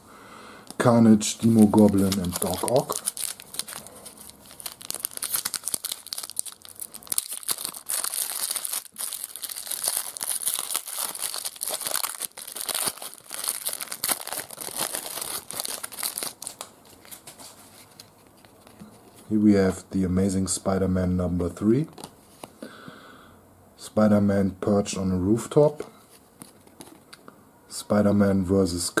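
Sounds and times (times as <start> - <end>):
foil wrapper tearing and crinkling: 1.4 - 17.3.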